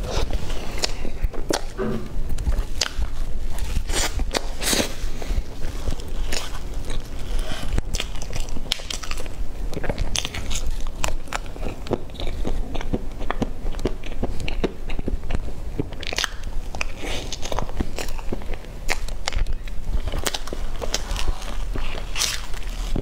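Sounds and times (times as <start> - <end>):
wet chewing mouth sounds: 0.0 - 23.0.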